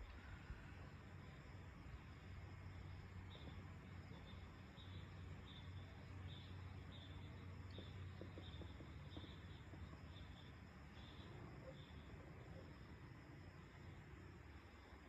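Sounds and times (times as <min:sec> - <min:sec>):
insect chirping: 0:00.0 - 0:15.0
distant hum: 0:03.2 - 0:14.9.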